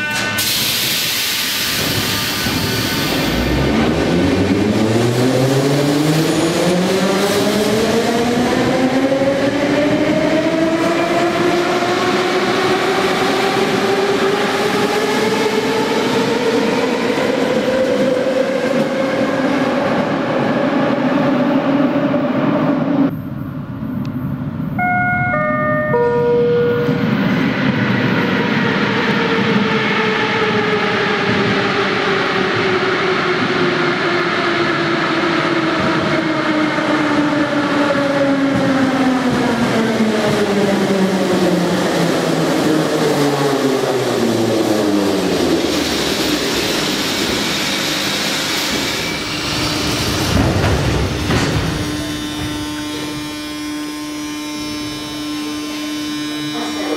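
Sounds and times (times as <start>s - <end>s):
wheels rumbling on rails: 1.8s - 56.9s
descending tones: 24.7s - 28.5s
train motor whine falling: 46.1s - 56.6s.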